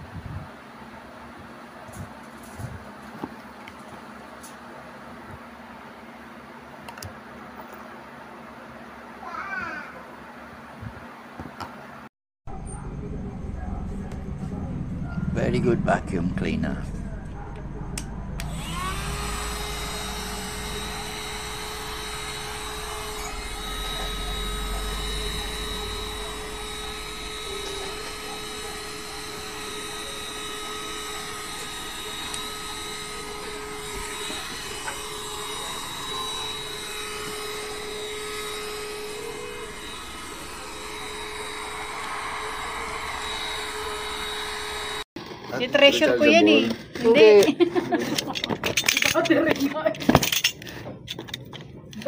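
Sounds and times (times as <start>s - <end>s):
mini vacuum cleaner running: 15.7s - 47.6s.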